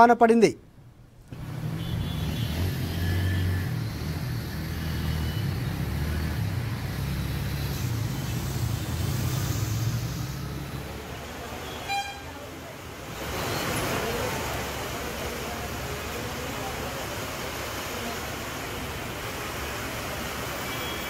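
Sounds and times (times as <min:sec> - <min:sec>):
traffic engines rumbling: 0:00.0 - 0:21.0
even hiss: 0:07.4 - 0:10.8.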